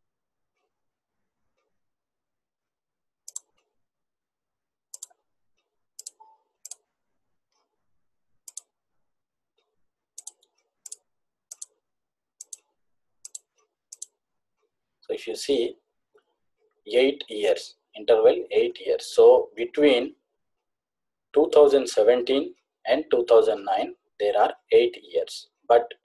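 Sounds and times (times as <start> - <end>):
computer mouse clicks: 3.2 - 3.7, 4.9 - 6.9, 8.4 - 8.8, 9.6 - 11.8, 12.4 - 14.2.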